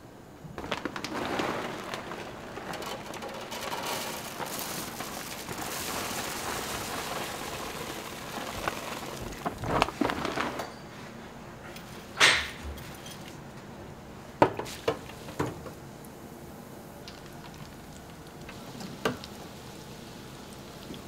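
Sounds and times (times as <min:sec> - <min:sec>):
plastic bag rustling: 0:00.4 - 0:12.1
nuts pouring into wire basket: 0:00.6 - 0:10.7.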